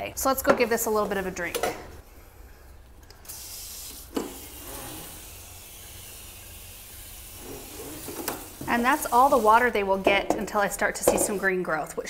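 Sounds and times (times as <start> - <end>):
faucet water running onto soil: 3.2 - 9.9.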